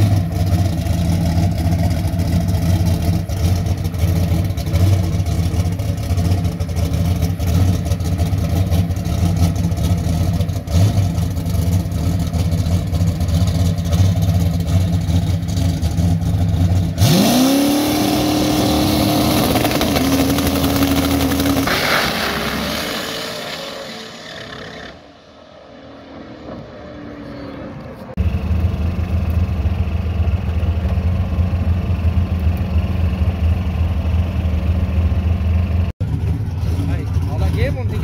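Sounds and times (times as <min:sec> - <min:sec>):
race car engine revving: 0:00.0 - 0:29.0
tow vehicle engine droning: 0:00.0 - 0:38.0.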